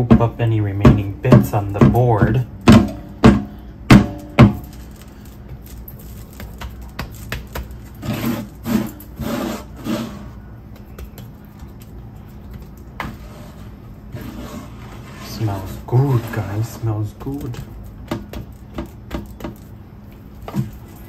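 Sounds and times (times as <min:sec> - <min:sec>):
meat scraping on board: 0:06.3 - 0:10.4, 0:13.0 - 0:17.5.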